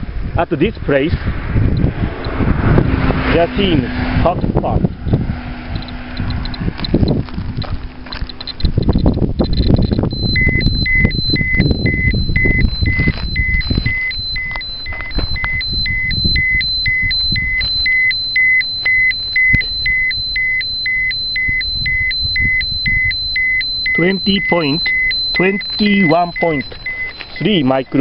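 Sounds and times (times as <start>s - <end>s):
meter being handled rustling: 5.7s - 20.3s, 22.6s - 27.6s
dosimeter short high-pitched beeps: 8.1s - 27.6s.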